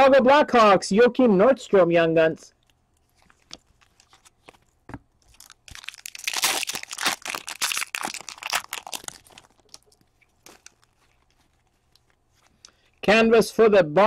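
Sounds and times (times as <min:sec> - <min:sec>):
wrapper tearing and crinkling: 0:03.0 - 0:12.3.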